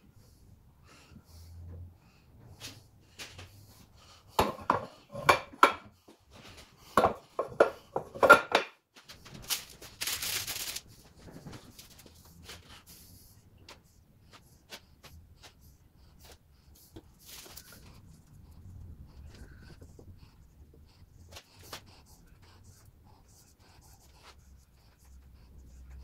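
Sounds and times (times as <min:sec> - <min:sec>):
scraping rustle: 0:09.0 - 0:12.7.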